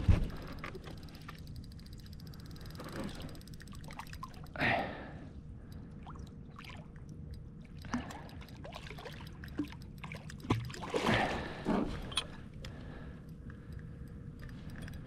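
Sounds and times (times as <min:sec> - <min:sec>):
water trickling and lapping: 0:00.0 - 0:15.0
small clicks and knocks: 0:12.0 - 0:15.0.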